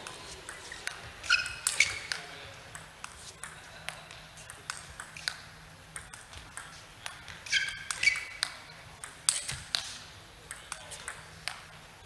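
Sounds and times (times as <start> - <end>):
sneakers squeaking on floor: 0.0 - 2.3, 7.1 - 8.7
table tennis ball clicking: 0.5 - 11.7.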